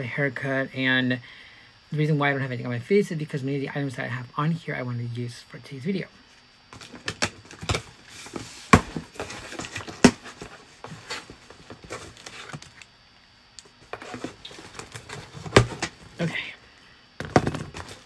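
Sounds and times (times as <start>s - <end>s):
packaging rustling: 6.8s - 12.9s, 13.8s - 16.3s, 17.2s - 18.0s
knocks and taps on cardboard box: 8.7s - 10.5s, 14.7s - 16.0s, 17.2s - 18.0s.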